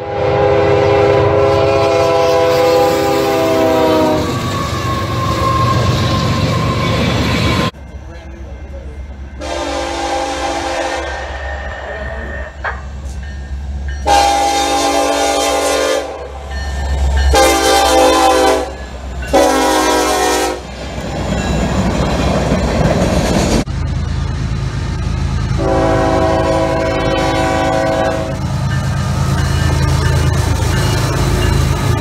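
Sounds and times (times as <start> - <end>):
locomotive air horn blasts: 0.0 - 4.7, 9.4 - 11.4, 14.0 - 16.4, 17.3 - 20.7, 25.6 - 28.4.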